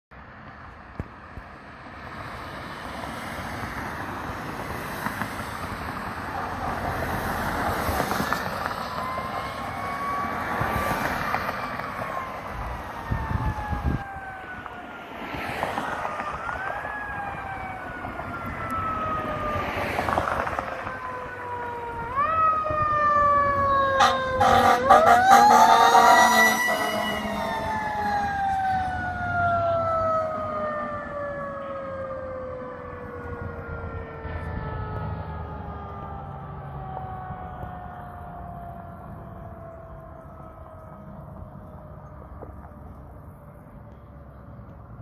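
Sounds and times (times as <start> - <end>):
fire engine siren wailing: 1.6 - 44.7
second siren tone: 8.4 - 43.0.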